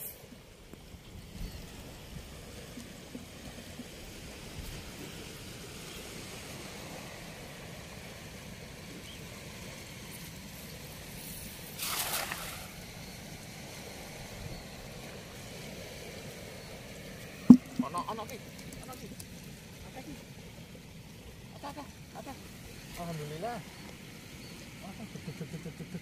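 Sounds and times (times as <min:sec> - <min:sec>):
splash: 0:11.6 - 0:12.9, 0:17.5 - 0:18.1.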